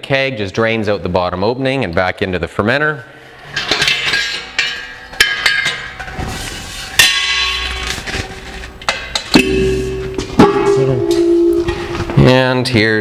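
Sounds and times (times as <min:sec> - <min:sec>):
metal kegs knocking and clanking: 0:03.5 - 0:06.1, 0:07.0 - 0:07.9, 0:08.8 - 0:12.4
metallic ringing: 0:07.0 - 0:08.1, 0:09.3 - 0:12.4.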